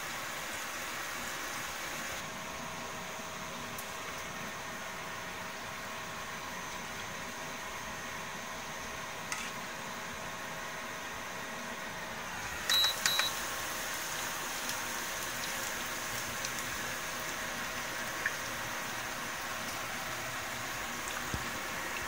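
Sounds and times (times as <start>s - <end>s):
fritters sizzling in oil: 12.2s - 22.0s
short high beeps: 12.7s - 13.3s.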